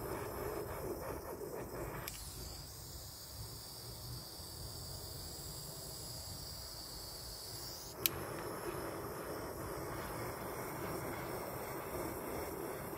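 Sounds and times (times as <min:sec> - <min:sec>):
torch flame hissing: 0:00.0 - 0:12.9
torch igniter click: 0:01.9 - 0:02.7, 0:07.6 - 0:08.7.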